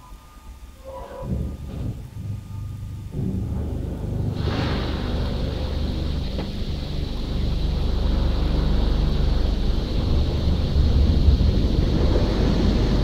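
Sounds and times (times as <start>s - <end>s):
car wash rumble: 0.0s - 13.0s
water spraying on car: 4.4s - 13.0s.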